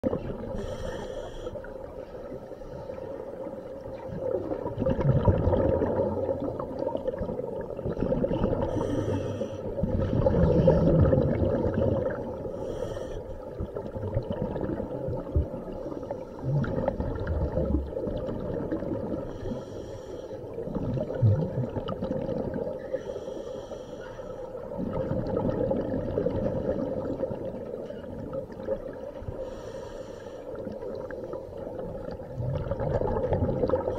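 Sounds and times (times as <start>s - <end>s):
underwater exhaled bubbles rumbling: 0.0s - 19.7s, 20.4s - 23.1s, 24.4s - 29.8s, 30.5s - 33.9s
regulator hissing inhalations: 0.6s - 1.7s, 8.7s - 9.7s, 12.5s - 13.4s, 19.3s - 20.4s, 23.0s - 24.4s, 29.4s - 30.6s.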